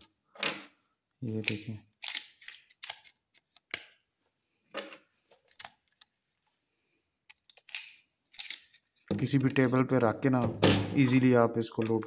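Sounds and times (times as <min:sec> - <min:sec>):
plastic magazine loader clicking: 0:01.4 - 0:03.9.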